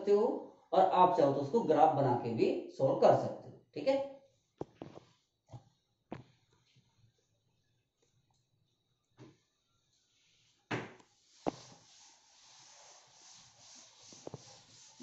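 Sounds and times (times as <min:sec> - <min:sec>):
duster rubbing on blackboard: 0:10.0 - 0:15.0.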